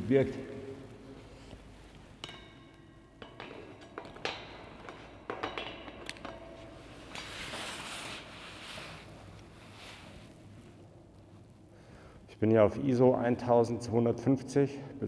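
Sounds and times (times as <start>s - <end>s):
soft rustling hiss: 0.0s - 3.0s, 6.4s - 15.0s.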